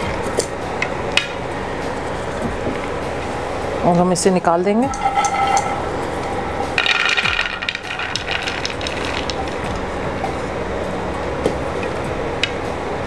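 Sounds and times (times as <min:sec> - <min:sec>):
peanuts clattering onto a plate: 0:06.8 - 0:09.9.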